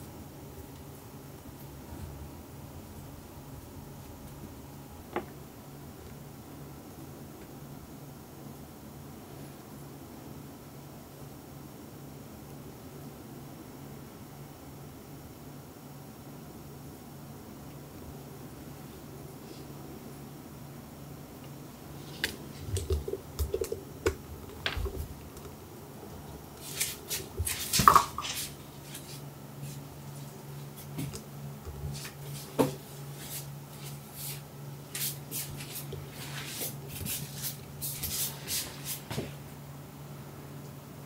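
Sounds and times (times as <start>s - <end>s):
steady low hum: 0.0s - 41.0s
cats rustling on bedding: 26.4s - 39.4s
cat scuffle: 26.5s - 39.4s.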